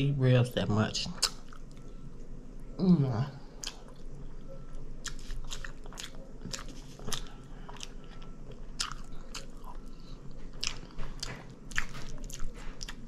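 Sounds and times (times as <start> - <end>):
person chewing: 1.2 - 1.9, 3.4 - 13.0.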